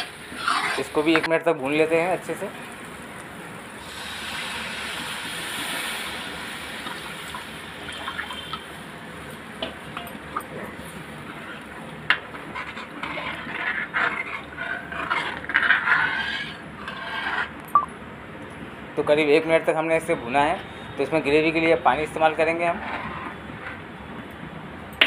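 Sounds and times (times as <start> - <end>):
ladle scraping pan: 0.0 - 1.3, 9.6 - 17.6, 22.5 - 23.8
water splashing into hot pan: 2.0 - 10.5.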